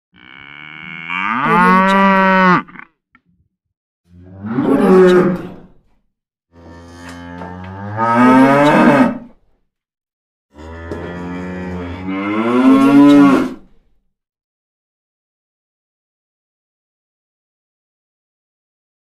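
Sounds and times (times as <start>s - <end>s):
cow mooing: 0.1s - 2.9s, 4.2s - 5.5s, 6.5s - 9.3s, 10.5s - 13.6s.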